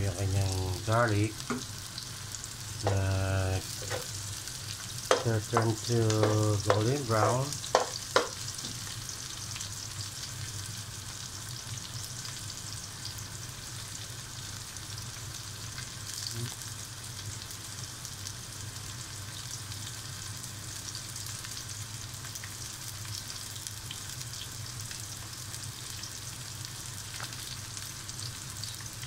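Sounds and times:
aromatics sizzling in hot oil: 0:00.0 - 0:29.0
metal spoon stirring: 0:03.8 - 0:04.1.

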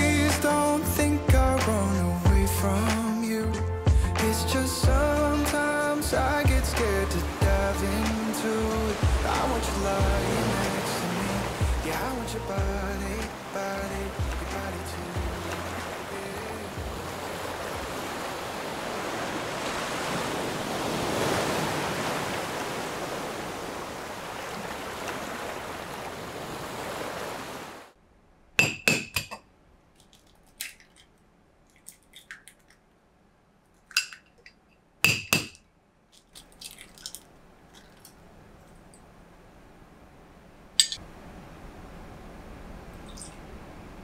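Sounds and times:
ocean surf washing: 0:00.0 - 0:28.0, 0:39.2 - 0:44.0
eggs clinking on glass bowl: 0:33.9 - 0:34.4, 0:40.8 - 0:41.0.

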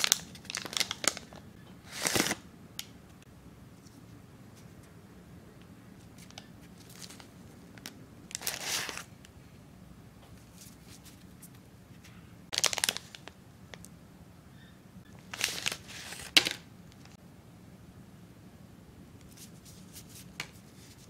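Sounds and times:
plastic packet crinkling: 0:00.0 - 0:01.4, 0:06.8 - 0:09.1, 0:12.5 - 0:13.4, 0:15.2 - 0:16.6
paper wrapper crinkling: 0:00.0 - 0:02.4, 0:06.2 - 0:09.1, 0:12.5 - 0:13.4, 0:15.2 - 0:17.2.

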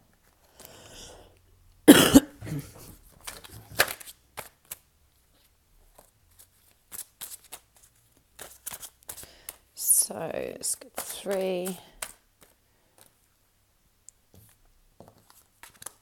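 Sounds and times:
cards slapping: 0:02.8 - 0:04.8, 0:05.9 - 0:09.7, 0:10.8 - 0:13.2, 0:14.3 - 0:16.0
cards clicking and rustling: 0:02.8 - 0:09.7, 0:10.6 - 0:13.3, 0:14.3 - 0:16.0.

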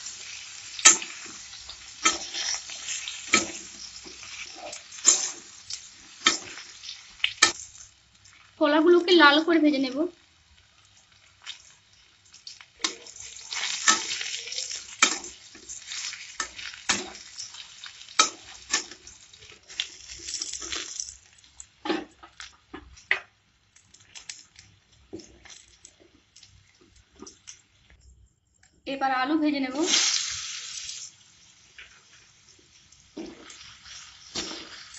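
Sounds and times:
banana slices sizzling in oil: 0:00.0 - 0:27.9, 0:29.2 - 0:34.9
spatula scraping a pan: 0:00.3 - 0:07.8, 0:12.8 - 0:21.0, 0:33.2 - 0:34.9.

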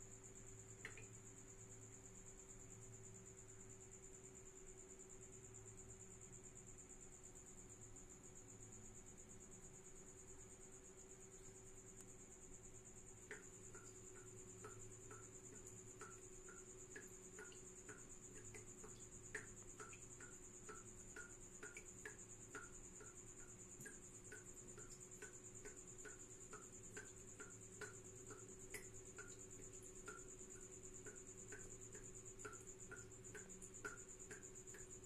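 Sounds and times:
cricket trill: 0:00.0 - 0:35.0
soft ticks: 0:00.8 - 0:01.1, 0:13.2 - 0:35.0.

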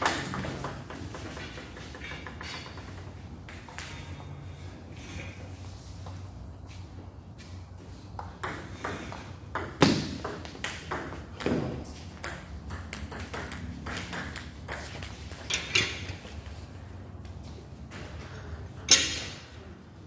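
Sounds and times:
ping pong ball bouncing on table: 0:00.0 - 0:04.0, 0:08.2 - 0:15.4
ping pong ball hitting paddles: 0:00.0 - 0:04.4, 0:08.2 - 0:16.9.

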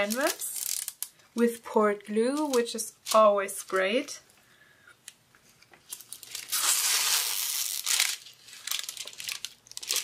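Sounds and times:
plastic film crinkling: 0:00.0 - 0:01.2, 0:05.8 - 0:10.0
sharp plastic crackles: 0:00.0 - 0:01.2, 0:05.8 - 0:10.0.

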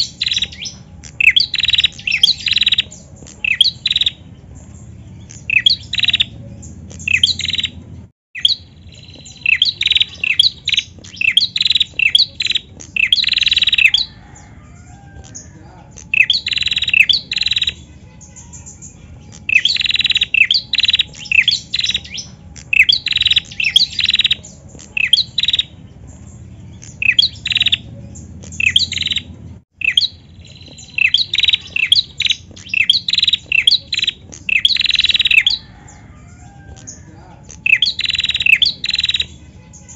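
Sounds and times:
bird calling high chip notes: 0:05.2 - 0:07.8, 0:08.4 - 0:14.4, 0:15.0 - 0:39.9.

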